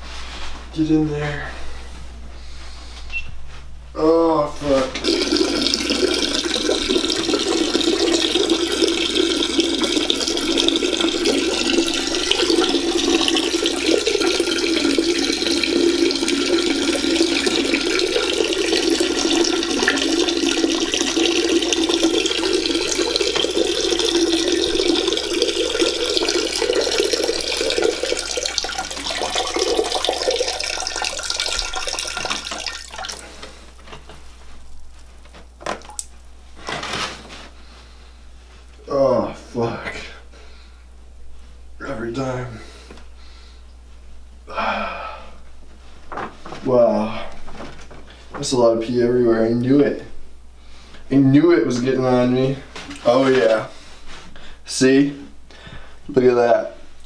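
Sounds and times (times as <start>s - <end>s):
urine stream into toilet water: 5.0s - 37.0s, 51.0s - 54.2s.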